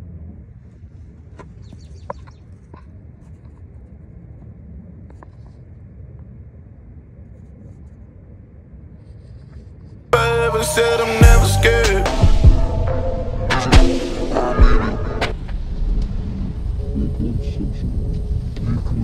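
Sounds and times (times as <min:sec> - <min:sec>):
steady low rumble: 0:10.2 - 0:19.0.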